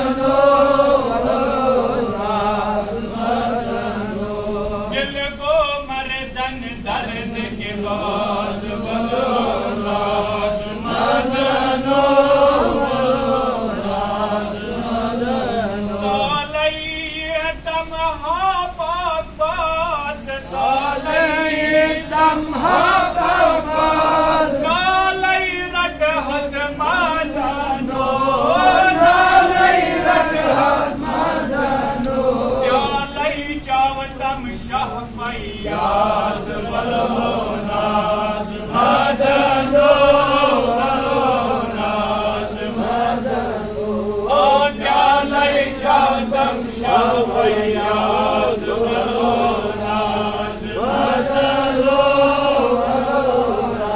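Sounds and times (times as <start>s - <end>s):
man chanting: 4.2s - 11.8s, 14.4s - 30.9s, 32.2s - 41.8s.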